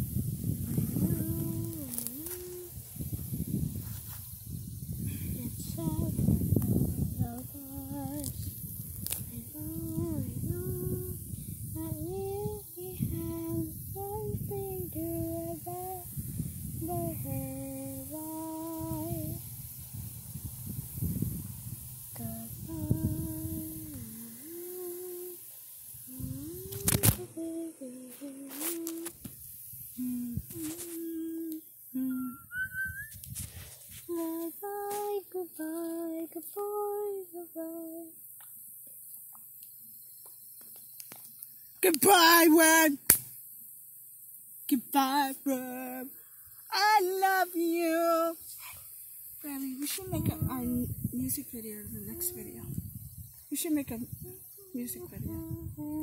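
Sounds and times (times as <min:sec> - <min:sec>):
child singing: 0:05.4 - 0:06.4, 0:09.3 - 0:11.2, 0:11.8 - 0:16.1, 0:16.8 - 0:19.4, 0:34.1 - 0:38.1, 0:46.7 - 0:48.4, 0:49.5 - 0:50.9, 0:52.0 - 0:52.7, 0:54.2 - 0:56.0.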